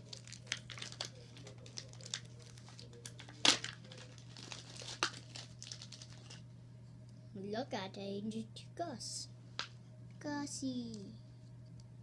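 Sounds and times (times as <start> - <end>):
packaging crinkling and tearing: 0.0 - 6.4.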